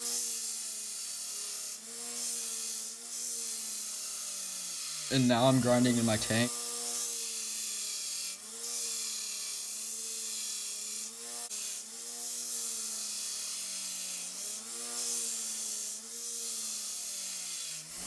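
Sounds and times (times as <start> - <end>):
belt grinder motor hum: 0.0 - 18.0
steel rasping on abrasive belt: 0.0 - 18.0.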